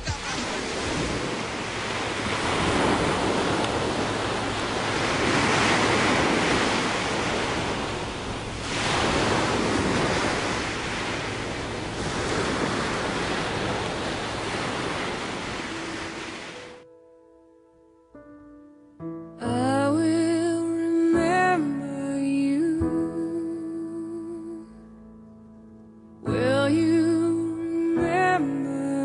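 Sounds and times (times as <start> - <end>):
ocean surf washing in: 0.0 - 16.8.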